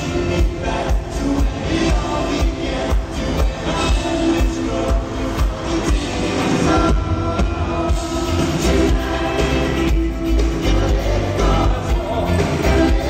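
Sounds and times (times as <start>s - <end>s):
live pop band playing: 0.0s - 13.0s.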